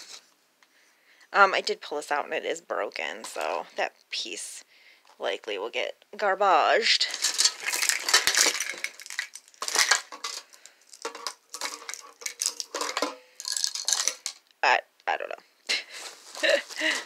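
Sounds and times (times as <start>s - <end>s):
decorations clattering in a box: 7.0s - 14.4s
string of bulb lights rattling: 7.0s - 14.5s.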